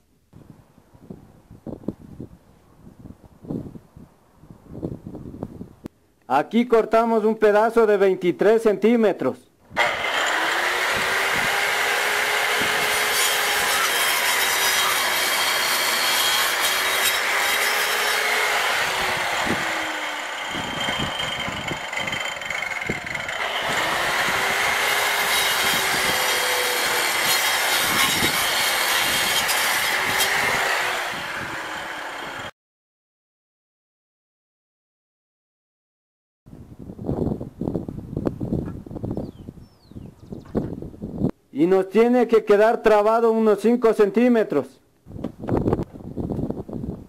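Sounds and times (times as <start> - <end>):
angle grinder cutting concrete: 9.8 - 32.5.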